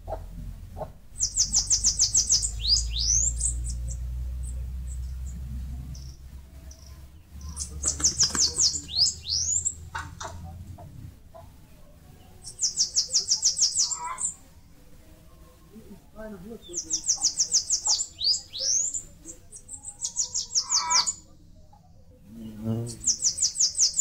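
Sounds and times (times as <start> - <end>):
low rumble: 0.0 - 12.4.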